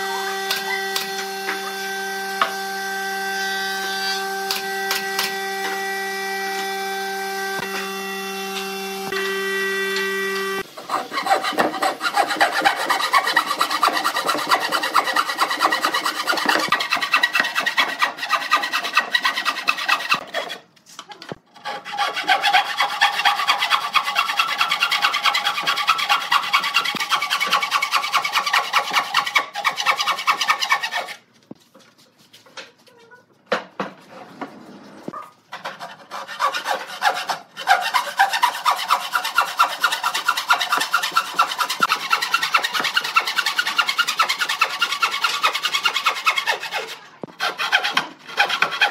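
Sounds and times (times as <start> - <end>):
hand saw cutting wood: 0.1 - 20.7, 21.4 - 31.3, 35.1 - 48.9.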